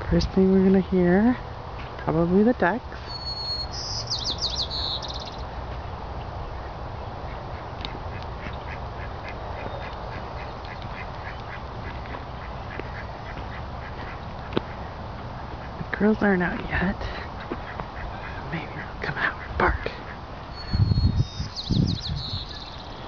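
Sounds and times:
high chirping trill: 3.0 - 5.4, 20.5 - 23.0
distant ducks quacking: 6.2 - 20.8.

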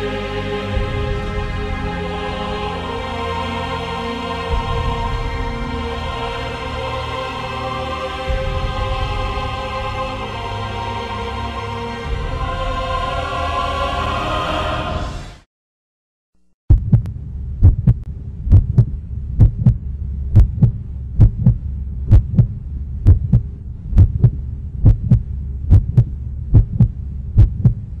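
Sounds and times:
music: 0.0 - 15.5
heartbeat thumps: 16.7 - 28.0
low steady hum: 16.7 - 28.0.

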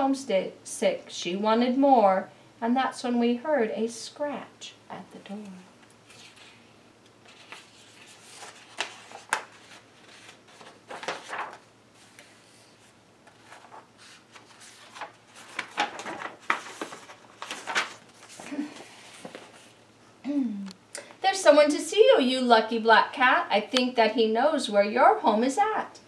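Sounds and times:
book pages turning: 5.4 - 6.6, 7.2 - 19.8.

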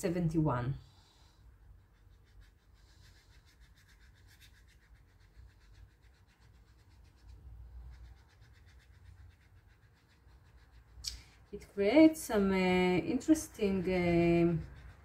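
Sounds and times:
paintbrush scrubbing paper: 1.0 - 15.0.

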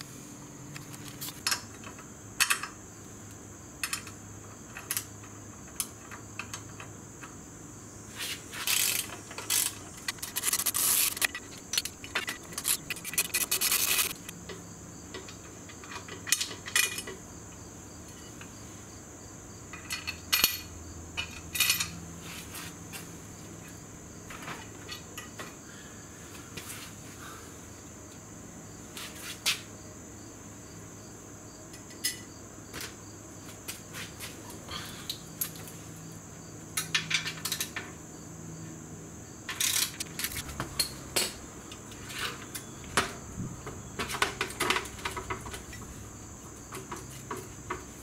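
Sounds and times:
cricket chirping: 0.0 - 48.0
rapid ratchet clicking: 8.6 - 14.3.

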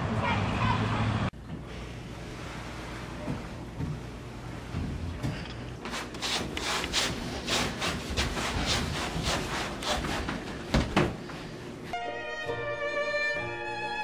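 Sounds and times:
rubbing strokes on wooden floor: 5.8 - 10.6
violin melody: 11.9 - 14.0.

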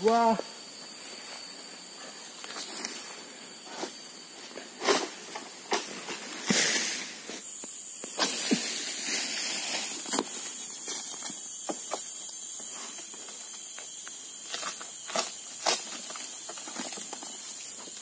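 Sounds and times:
palm fronds rustling and swishing: 0.9 - 11.3.

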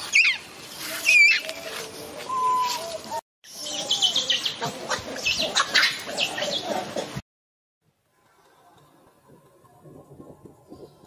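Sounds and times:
monkeys squeaking and chirping: 3.6 - 7.0.

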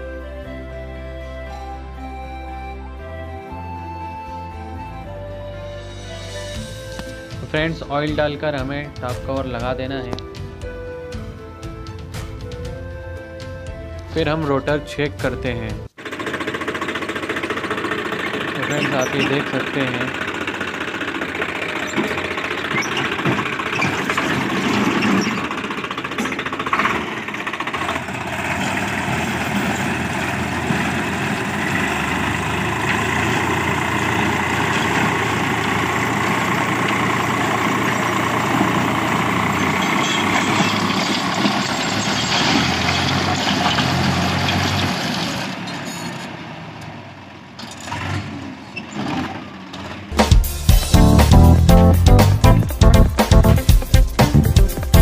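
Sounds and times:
diesel tractor engine under load: 15.9 - 55.0
rotavator blades churning soil: 16.0 - 45.9.

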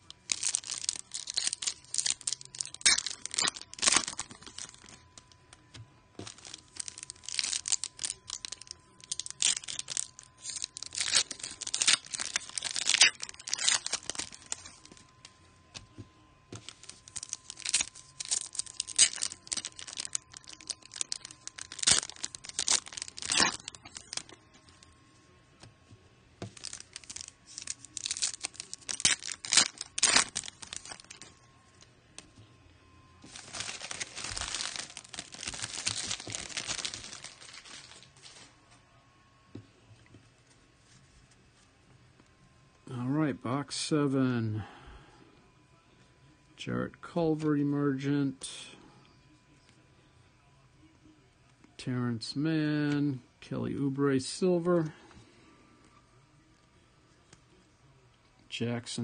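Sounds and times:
plastic wrapper tearing and crinkling: 0.0 - 25.0, 26.4 - 31.9, 33.2 - 38.6.

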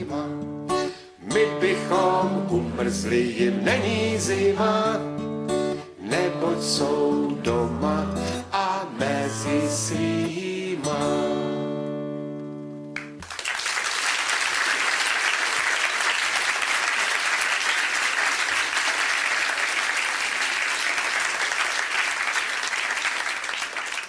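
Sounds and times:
audience applauding: 13.0 - 24.0.

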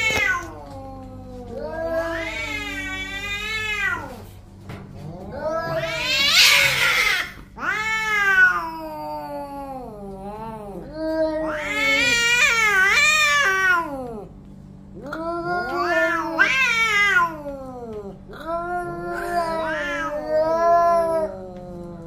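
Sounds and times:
cats yowling: 0.0 - 4.4, 5.0 - 14.3, 15.0 - 22.0
cat hissing: 5.3 - 8.8.

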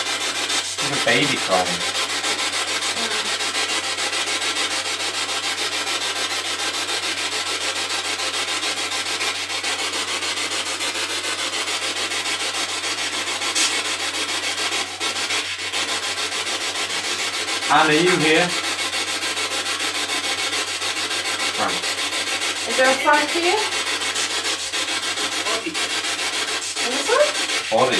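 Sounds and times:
radio static pulsing: 0.6 - 1.9, 2.9 - 3.4, 15.0 - 19.1, 19.9 - 27.9.

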